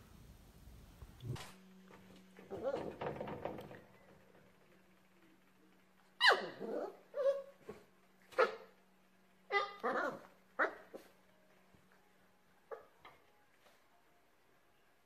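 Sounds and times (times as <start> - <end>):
puppy yipping: 6.2 - 8.7, 9.5 - 11.1, 12.7 - 13.2.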